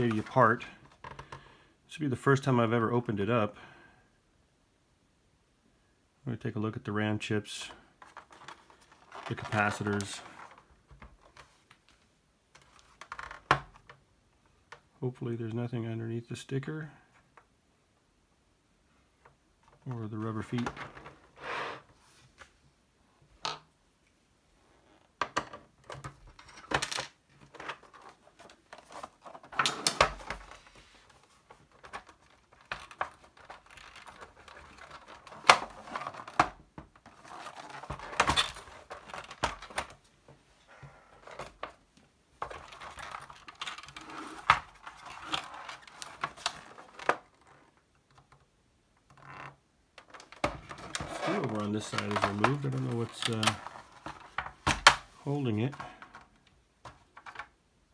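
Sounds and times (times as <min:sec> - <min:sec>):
plastic case clicking and clattering: 0:31.4 - 0:40.0, 0:42.4 - 0:48.5, 0:49.2 - 0:55.1.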